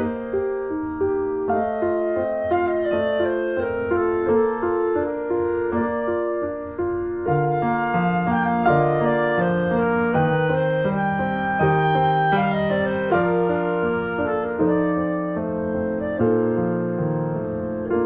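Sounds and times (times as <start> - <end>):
keyboard melody: 0.0 - 18.0.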